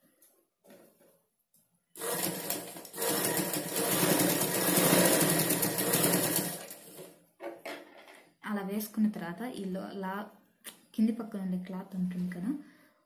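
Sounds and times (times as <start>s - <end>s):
sewing machine running: 2.0s - 7.1s.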